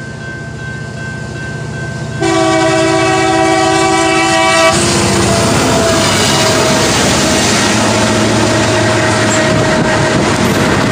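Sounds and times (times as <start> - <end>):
rolling train wheels: 0.0 - 10.9
train rumble: 0.0 - 10.9
locomotive air horn chord: 2.2 - 10.5.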